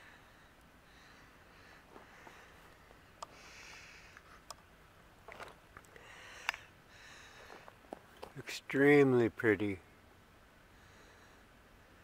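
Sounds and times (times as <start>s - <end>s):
breathing through the nose: 3.3s - 4.4s, 5.9s - 7.8s.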